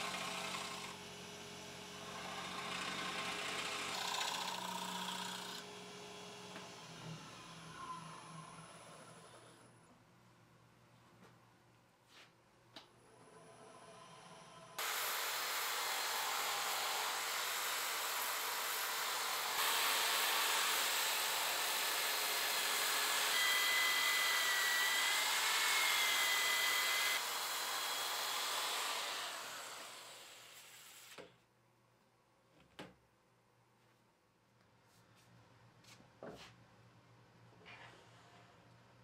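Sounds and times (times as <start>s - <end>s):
wood lathe turning hiss: 14.8s - 31.2s.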